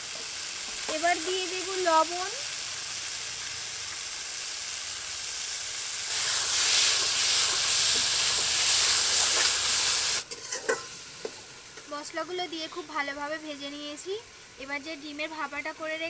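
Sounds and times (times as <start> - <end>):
vegetables sizzling in oil: 0.0 - 16.0
metal spatula stirring: 10.3 - 10.9.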